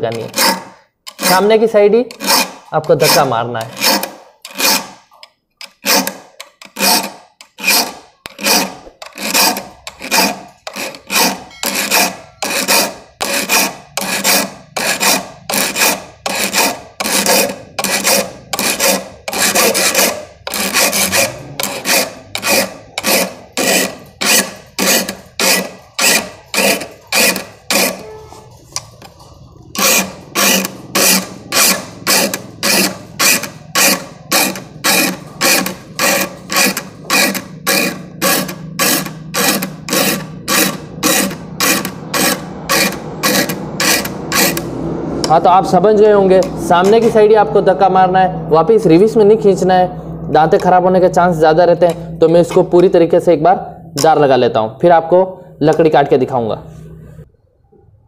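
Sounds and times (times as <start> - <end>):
file rasping on saw teeth: 0.0 - 45.4.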